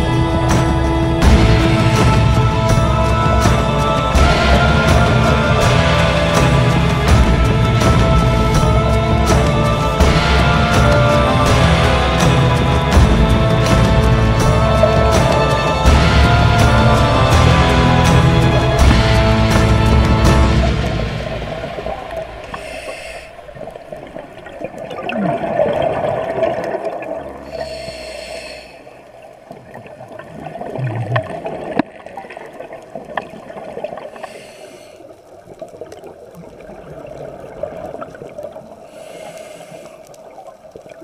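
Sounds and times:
bubbling and gurgling: 0:00.0 - 0:41.0
regulator breathing hiss: 0:22.1 - 0:23.6, 0:27.4 - 0:29.0, 0:34.1 - 0:35.1, 0:38.8 - 0:40.1.

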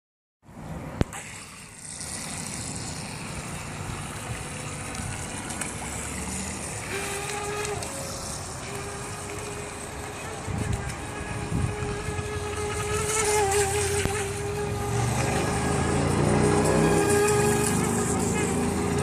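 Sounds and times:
thin motor whine: 0:00.5 - 0:19.0
boat rushing through water: 0:00.6 - 0:19.0.

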